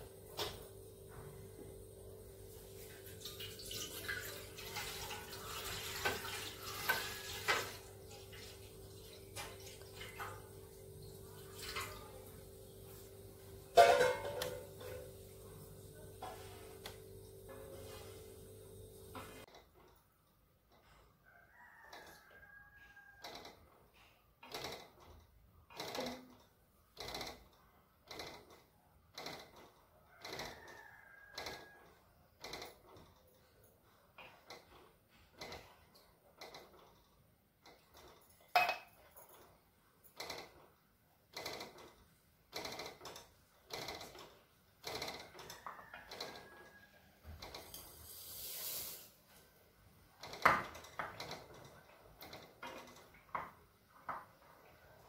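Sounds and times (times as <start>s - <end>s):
brief hiss: 48.0s - 49.2s.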